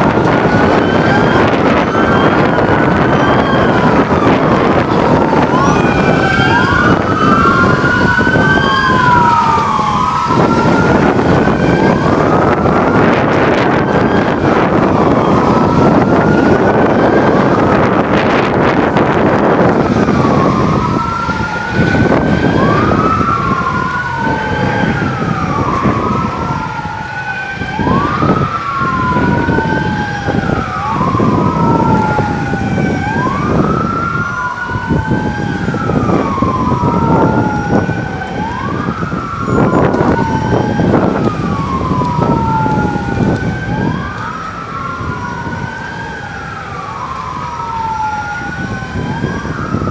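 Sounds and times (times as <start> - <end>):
dense rushing noise: 0.0 - 34.0
police sirens wailing: 0.0 - 49.9.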